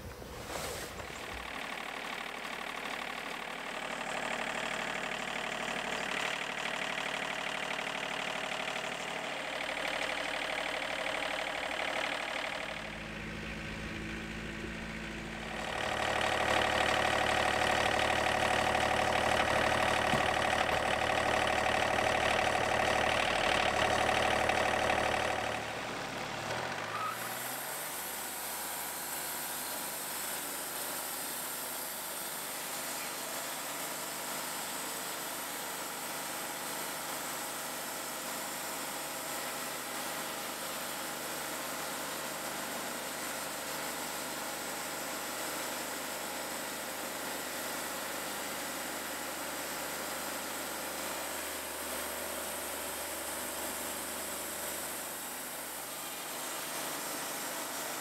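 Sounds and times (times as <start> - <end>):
sawmill engine running: 0.0 - 58.0
hydraulic log loader lifting: 11.8 - 27.9.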